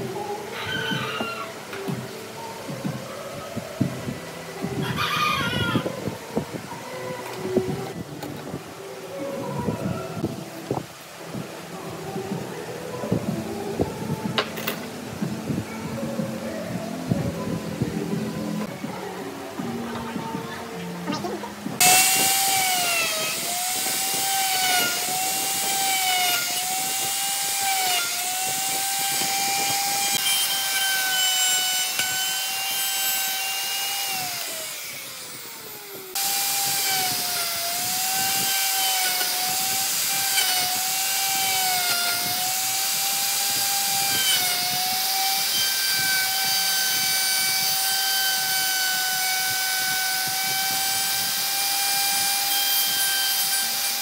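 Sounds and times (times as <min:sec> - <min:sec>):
electric router cutting wood: 0:21.8 - 0:54.0.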